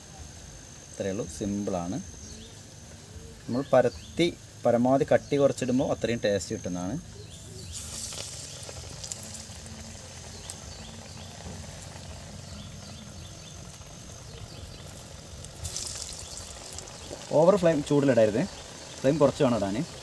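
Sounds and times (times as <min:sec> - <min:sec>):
patties sizzling in hot oil: 0:00.0 - 0:20.0.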